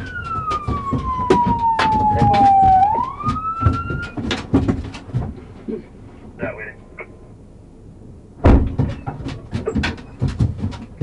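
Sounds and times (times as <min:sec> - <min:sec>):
police siren wailing: 0:00.0 - 0:04.4
sharp clicks and knocks: 0:00.0 - 0:05.5, 0:08.4 - 0:11.0.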